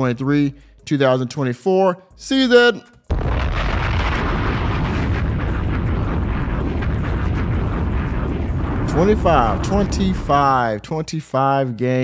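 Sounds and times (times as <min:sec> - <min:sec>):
loud rumbling with crackle: 0:03.1 - 0:10.8.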